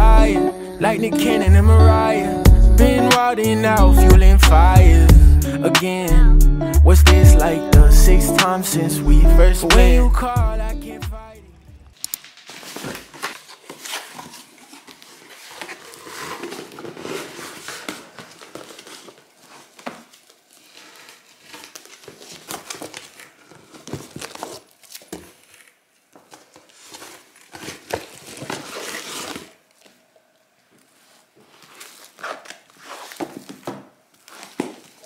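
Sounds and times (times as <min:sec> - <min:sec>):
cardboard and plastic rustling: 0:11.8 - 0:35.0.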